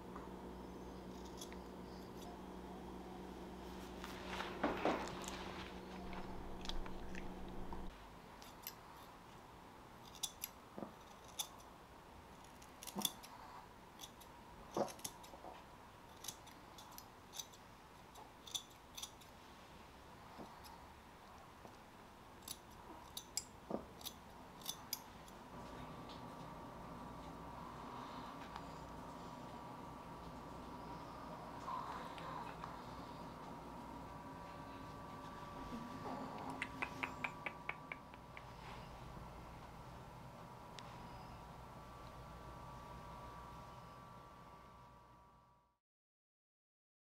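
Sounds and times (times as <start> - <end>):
low steady hum: 0.0 - 45.8
scissors snipping fur: 1.1 - 2.4, 8.4 - 9.1, 10.0 - 11.7, 12.4 - 15.5, 16.1 - 19.3, 22.4 - 25.4.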